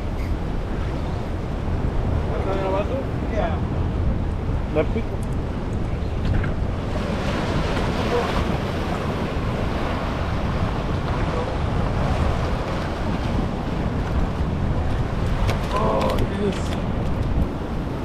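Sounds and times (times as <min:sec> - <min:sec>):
wind buffeting microphone: 0:00.0 - 0:18.0
waves washing against rocks: 0:06.2 - 0:18.0.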